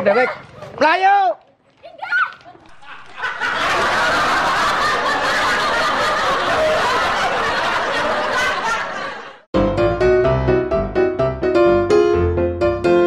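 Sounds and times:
canned laughter: 0:02.7 - 0:09.4.

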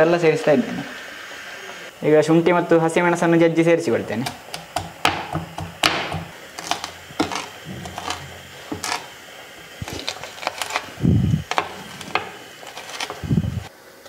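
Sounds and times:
pounding knocks on a board: 0:04.6 - 0:06.3
heavy thud: 0:07.6 - 0:09.0.

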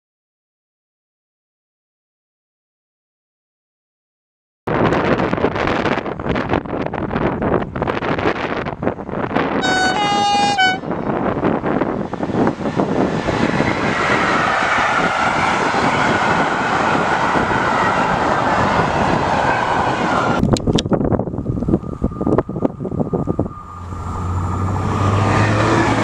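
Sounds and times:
wind buffeting microphone: 0:04.7 - 0:26.0
train wheels on rails: 0:05.0 - 0:26.0
locomotive two-tone horn: 0:09.6 - 0:11.0.

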